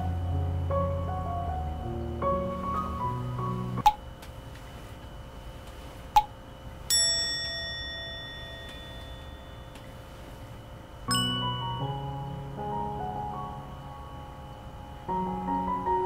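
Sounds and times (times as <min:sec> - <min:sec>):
background piano music: 0:00.0 - 0:03.9, 0:11.1 - 0:16.0
bell-like chime ding: 0:06.9 - 0:10.0, 0:11.1 - 0:12.6.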